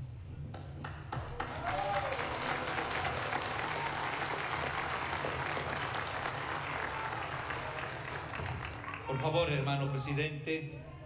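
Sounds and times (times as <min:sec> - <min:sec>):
crowd applauding: 0:00.8 - 0:09.7.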